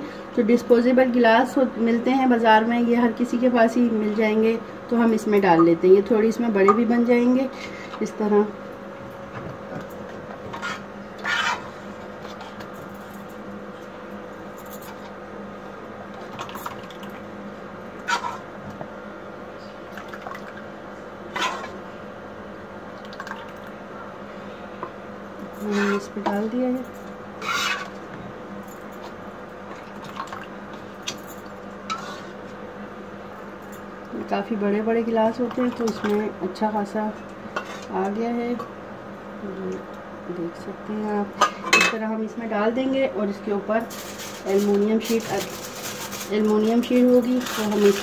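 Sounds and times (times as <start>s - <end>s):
steady low hum: 0.0s - 48.0s
cups and pan scraping: 10.5s - 11.7s, 25.6s - 26.1s, 27.4s - 28.0s.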